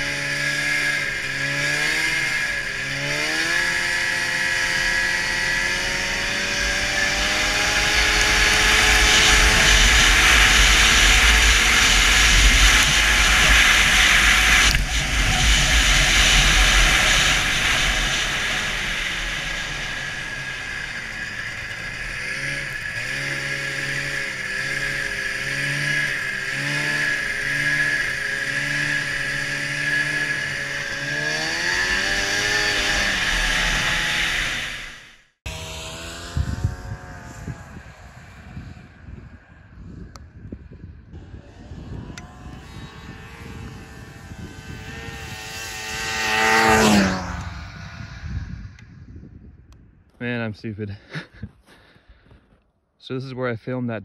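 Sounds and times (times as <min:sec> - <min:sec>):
snowmobile engine revving: 0:00.0 - 0:39.6, 0:41.2 - 0:48.8
wind rushing on microphone: 0:05.0 - 0:24.8, 0:35.6 - 0:50.7.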